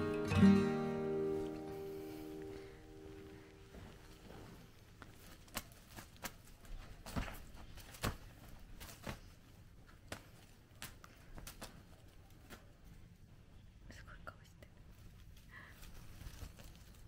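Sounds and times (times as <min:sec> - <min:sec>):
cat pouncing on a duvet: 0:05.2 - 0:09.4.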